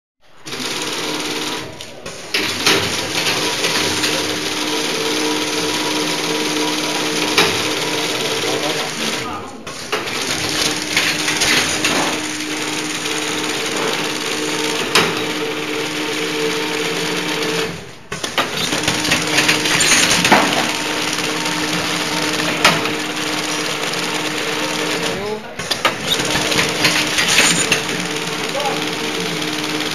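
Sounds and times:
packing machine clatter: 0:00.4 - 0:29.9
steady machine hum: 0:00.7 - 0:29.9
sharp clicks: 0:26.1 - 0:27.9.

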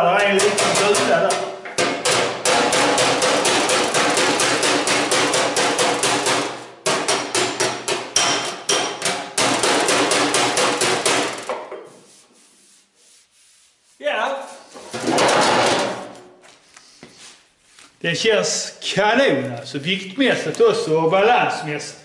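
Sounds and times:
slapper hitting steel panel: 0:00.2 - 0:11.7.

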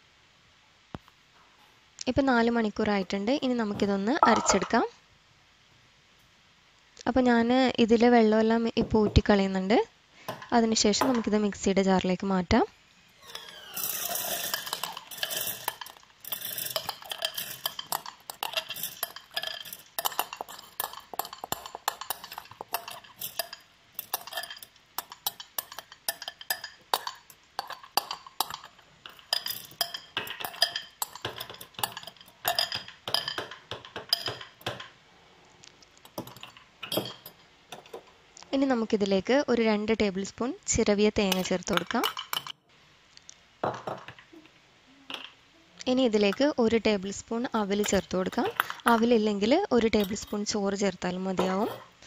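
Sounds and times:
spoon scraping and clinking bowl: 0:13.3 - 0:34.9, 0:36.0 - 0:38.0, 0:41.3 - 0:42.5
wet grains falling into metal jar: 0:13.8 - 0:34.8.

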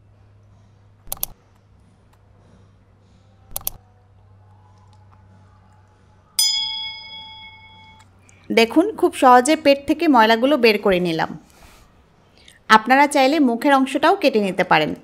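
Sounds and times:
faint steady hum: 0:00.0 - 0:15.0
mouse clicks: 0:01.1 - 0:01.4, 0:03.5 - 0:03.8
bell-like notification ding: 0:06.4 - 0:08.0.

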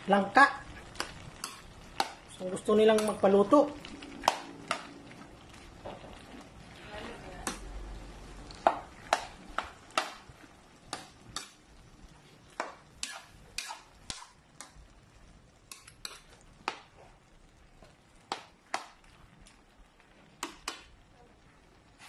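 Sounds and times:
spatula scraping metal pan: 0:13.0 - 0:14.3.

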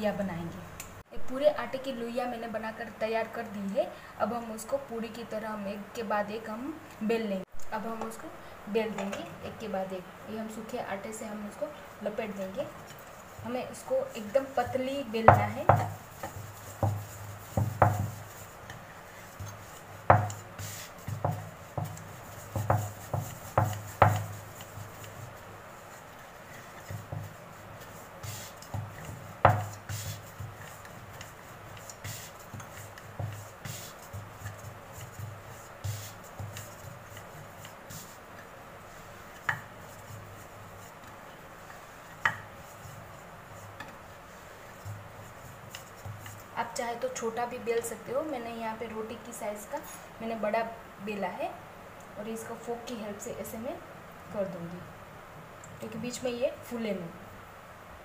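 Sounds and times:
rolling pin knocking on wooden board: 0:15.2 - 0:18.2, 0:19.4 - 0:20.4, 0:21.1 - 0:25.2, 0:26.8 - 0:27.4, 0:28.3 - 0:31.2.

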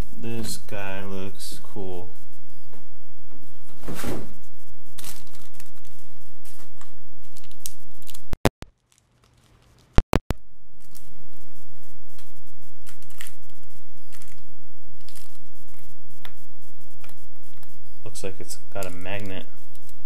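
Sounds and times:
plastic bag rustling: 0:05.0 - 0:06.6, 0:07.2 - 0:10.0.

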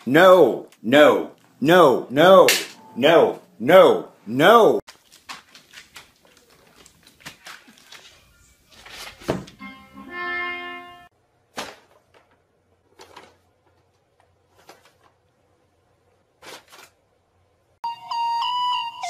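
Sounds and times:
paper bag rustling: 0:04.9 - 0:09.6, 0:11.5 - 0:15.3, 0:16.3 - 0:17.0.

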